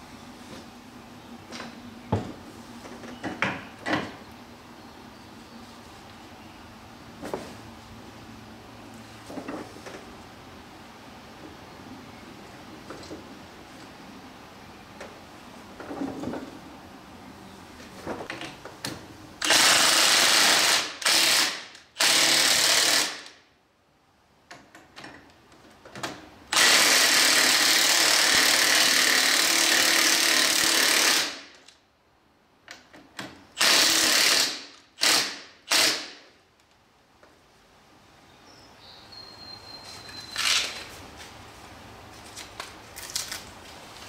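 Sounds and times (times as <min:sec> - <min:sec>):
impact driver running in bursts: 0:19.4 - 0:23.4, 0:26.5 - 0:31.5, 0:33.6 - 0:36.2.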